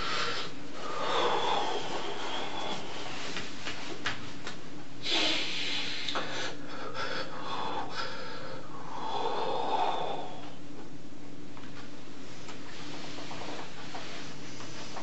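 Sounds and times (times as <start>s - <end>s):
man breathing heavily and sniffing: 0.0s - 3.6s, 5.0s - 10.6s.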